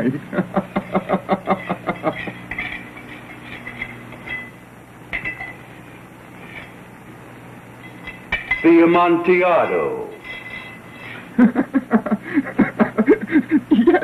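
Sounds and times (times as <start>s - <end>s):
trowel scraping brick and mortar: 1.5s - 4.5s.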